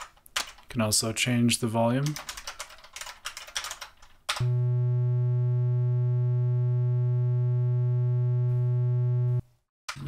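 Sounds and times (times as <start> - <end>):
typing on computer keyboard: 2.0 - 4.4
low buzzy electronic tone: 4.4 - 9.5.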